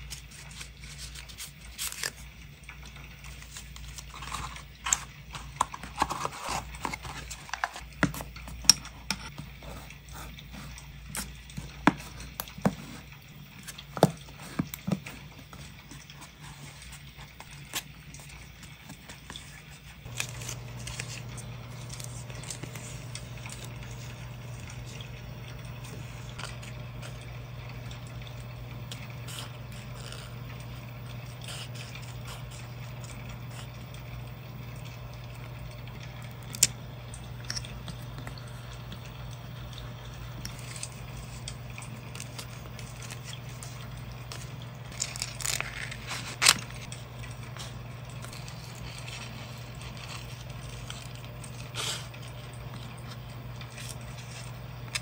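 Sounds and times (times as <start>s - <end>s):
sticker packet rustling: 18.5s - 25.1s, 40.3s - 55.0s
scissors cutting: 20.1s - 24.1s, 44.9s - 46.8s.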